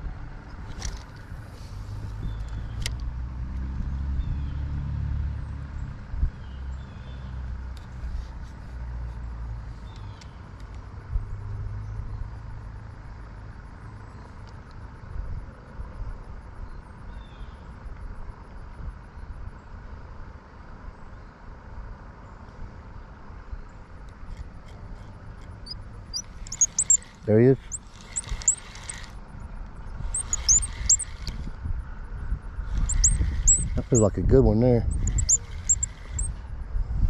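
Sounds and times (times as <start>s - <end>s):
low outdoor rumble: 0.0s - 17.0s, 17.8s - 37.0s
faint bird chirps: 25.7s - 29.0s, 30.1s - 31.3s, 32.8s - 34.2s, 34.9s - 36.3s.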